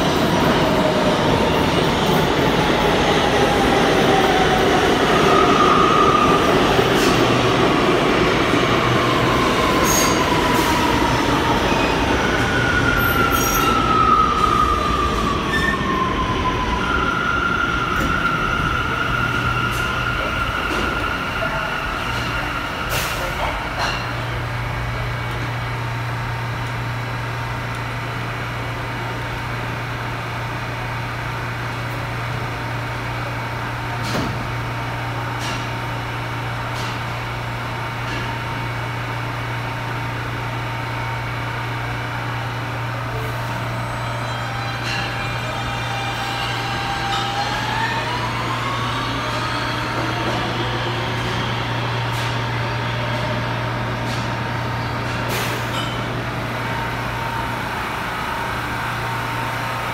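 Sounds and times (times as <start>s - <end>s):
rumble of train wheels: 0.0s - 59.9s
subway train humming: 0.0s - 59.9s.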